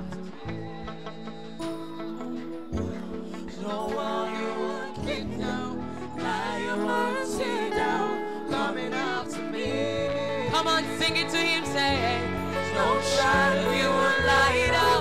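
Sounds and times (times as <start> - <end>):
instrumental accompaniment: 0.0 - 15.0
woman singing lead: 3.3 - 15.0
backing singers: 3.6 - 15.0.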